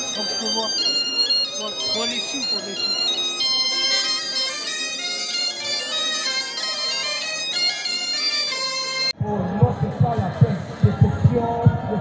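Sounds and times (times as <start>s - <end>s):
accordion: 0.0s - 9.2s
folk wind instruments melody: 0.0s - 9.2s.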